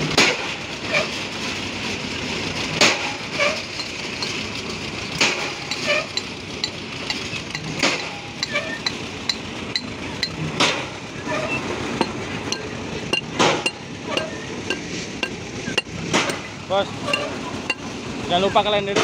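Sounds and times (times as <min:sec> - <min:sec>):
sharp metallic clinks: 0:03.6 - 0:10.4, 0:12.0 - 0:17.9.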